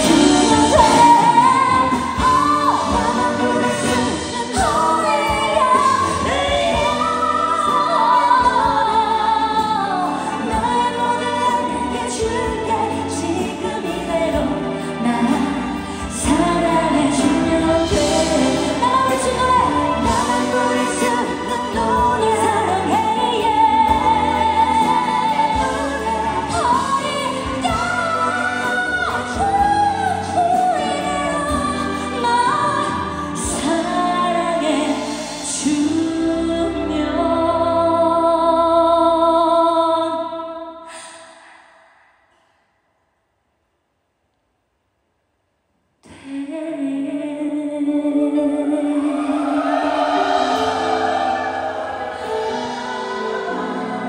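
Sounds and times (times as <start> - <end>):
band accompaniment: 0.0 - 38.1, 48.9 - 54.0
woman singing into a microphone: 0.0 - 41.5, 46.0 - 54.0.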